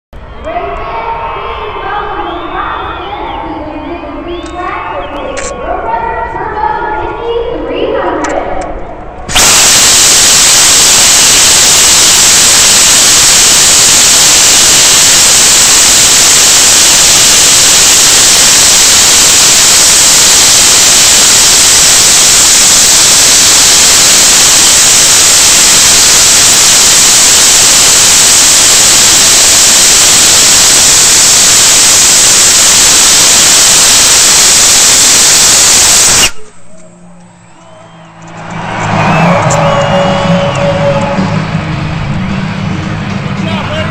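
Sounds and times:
rocket belt loud hiss: 0:09.3 - 0:36.5.

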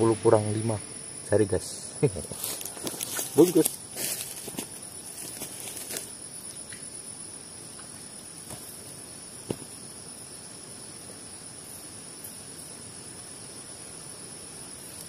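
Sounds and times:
high-pitched insect chorus: 0:00.0 - 0:15.0.

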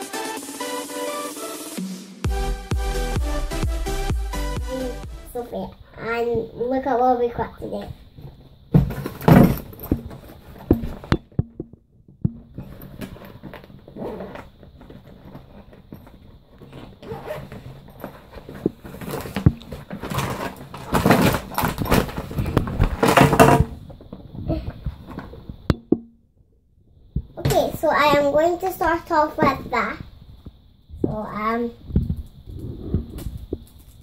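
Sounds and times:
backpack rustling: 0:12.4 - 0:23.8.

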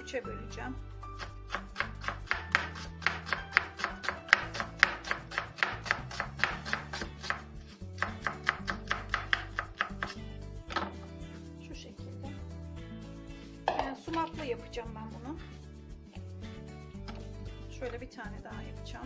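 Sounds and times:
knife chopping onion on board: 0:01.2 - 0:10.2.

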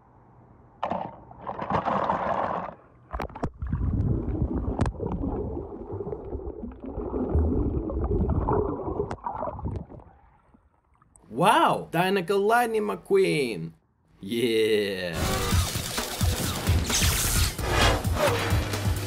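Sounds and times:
water splashing and sloshing: 0:00.8 - 0:11.2.

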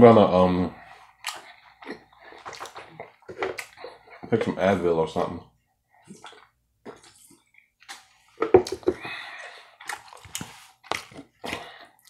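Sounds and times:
wet swallowing and sipping: 0:00.8 - 0:04.5, 0:06.0 - 0:12.0.

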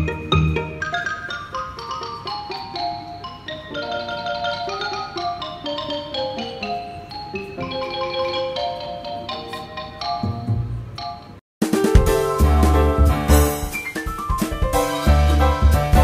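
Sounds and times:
light melody of struck notes: 0:00.0 - 0:16.0.

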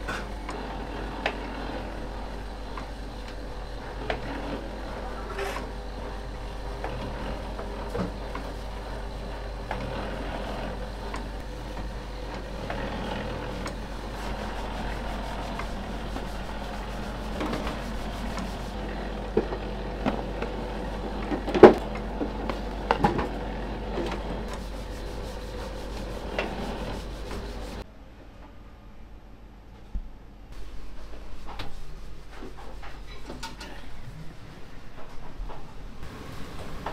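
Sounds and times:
noodle machine humming and rattling: 0:00.0 - 0:27.8.

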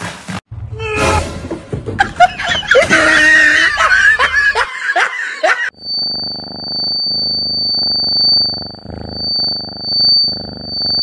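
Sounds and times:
people laughing: 0:02.0 - 0:05.7
cat purring: 0:05.7 - 0:11.0.

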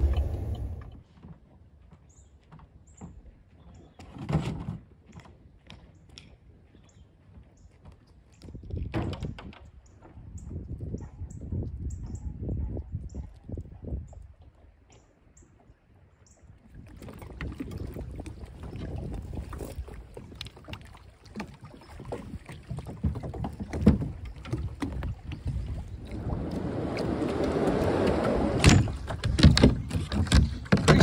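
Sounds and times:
rushing noise: 0:00.0 - 0:01.0
wind rumble on microphone: 0:00.0 - 0:01.0, 0:08.4 - 0:15.0, 0:16.4 - 0:20.9, 0:21.9 - 0:31.0
kayak knocking against dock: 0:20.7 - 0:31.0.

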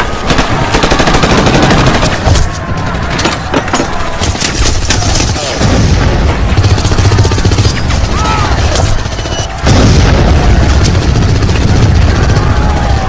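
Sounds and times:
automatic gunfire: 0:00.0 - 0:02.4.

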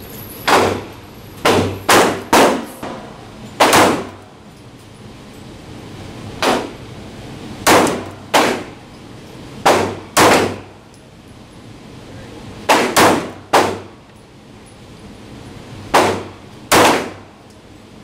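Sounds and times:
pistol shots echoing indoors: 0:00.5 - 0:04.2, 0:06.4 - 0:06.8, 0:07.6 - 0:08.8, 0:09.6 - 0:10.7, 0:12.6 - 0:13.9, 0:15.9 - 0:17.3.

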